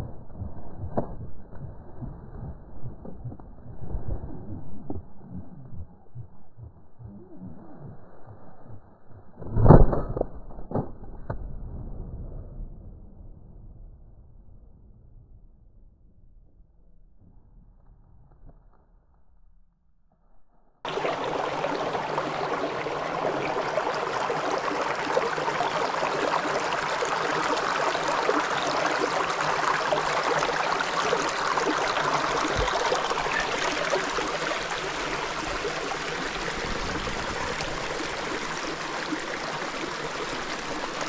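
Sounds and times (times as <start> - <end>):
stream splashing over rocks: 20.9 - 41.0.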